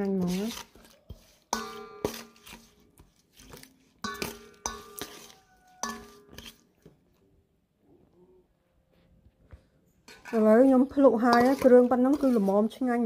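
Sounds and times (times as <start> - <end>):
metal spoon clinking bowl: 0.2 - 2.8, 3.4 - 6.9, 10.1 - 13.0.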